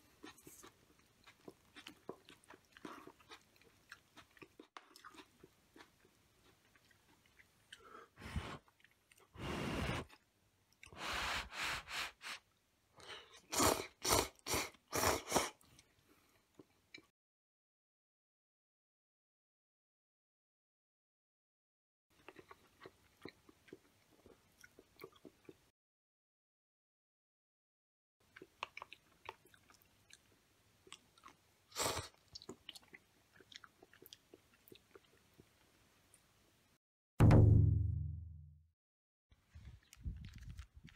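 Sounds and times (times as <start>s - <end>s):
person chewing noodles: 0.0s - 11.3s, 13.0s - 17.1s, 22.2s - 25.7s, 28.2s - 36.3s, 39.6s - 40.9s
person slurping noodles: 9.4s - 10.2s, 10.9s - 12.4s, 13.3s - 15.6s.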